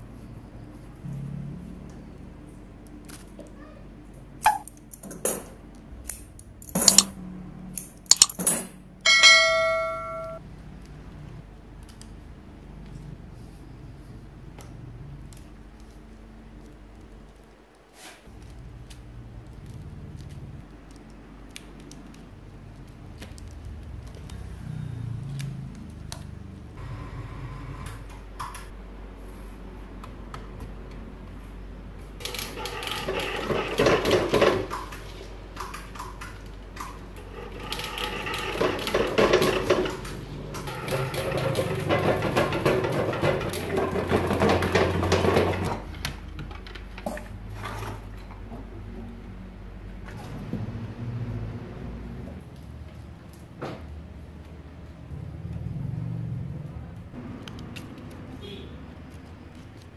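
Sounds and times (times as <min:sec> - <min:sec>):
handling clicks and taps: 0:06.7 - 0:07.1, 0:08.1 - 0:08.5
coil-winding machine rattling: 0:32.2 - 0:34.8, 0:37.2 - 0:45.7.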